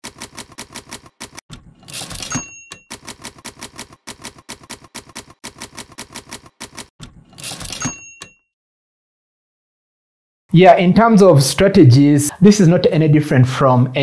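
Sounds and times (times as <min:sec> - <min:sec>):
typewriter keys clacking: 0:00.0 - 0:08.4
typewriter carriage return bell: 0:00.0 - 0:08.5.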